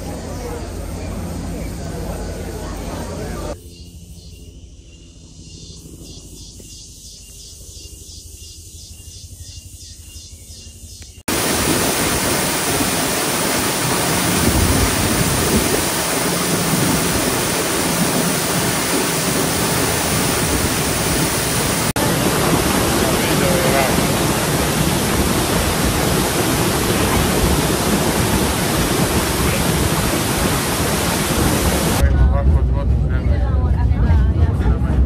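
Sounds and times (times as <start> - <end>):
waterfall rushing into pool: 11.3 - 32.0.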